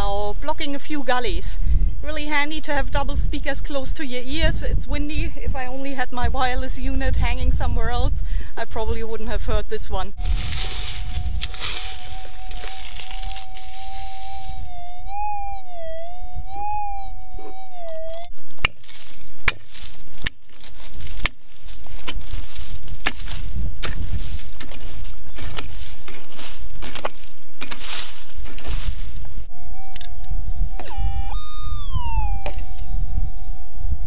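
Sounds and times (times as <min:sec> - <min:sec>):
wind rumble on microphone: 0:00.0 - 0:34.0
metal detector humming: 0:10.2 - 0:27.7, 0:29.4 - 0:34.0
digging knocks and scrapes: 0:18.5 - 0:29.3
pick striking ground: 0:18.5 - 0:29.4.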